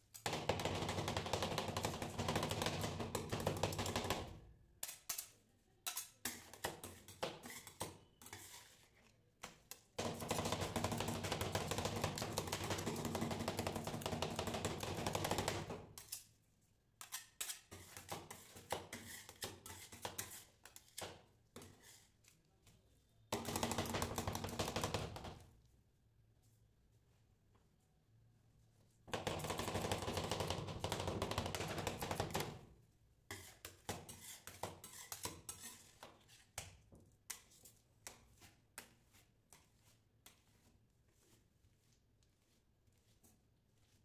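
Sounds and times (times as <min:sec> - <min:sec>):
metal spatulas chopping on metal plate: 0:00.1 - 0:08.8, 0:09.4 - 0:16.3, 0:17.0 - 0:21.8, 0:33.3 - 0:38.2.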